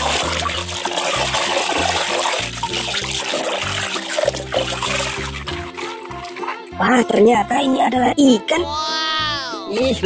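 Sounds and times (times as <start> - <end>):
hand scrubbing plastic toy: 0.0 - 7.0
water splashing in plastic basin: 0.0 - 7.2
background music with bass: 0.0 - 10.0.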